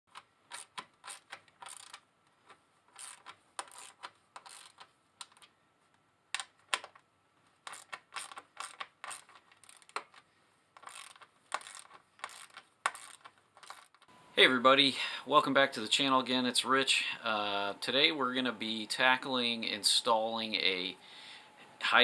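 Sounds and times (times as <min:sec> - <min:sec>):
metal clicks rattles and scrapes: 0:00.1 - 0:05.5, 0:07.6 - 0:14.1.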